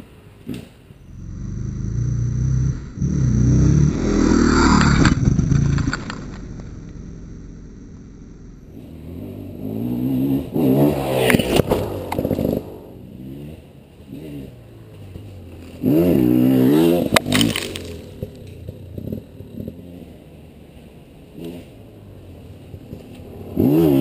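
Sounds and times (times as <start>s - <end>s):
dirt bike engine revving: 1.0s - 20.1s.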